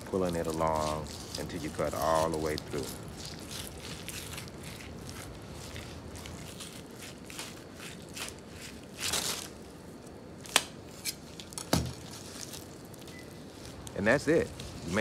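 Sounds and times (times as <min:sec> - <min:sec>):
knife scraping fish skin: 0:00.1 - 0:09.5.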